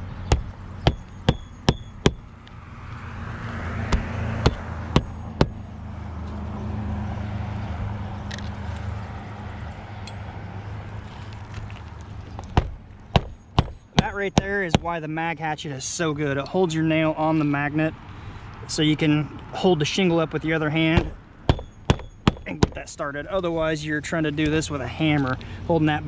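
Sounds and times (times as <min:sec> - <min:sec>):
hatchet striking roofing nails: 0:00.2 - 0:02.3, 0:03.8 - 0:05.6, 0:12.5 - 0:14.9, 0:21.0 - 0:22.8.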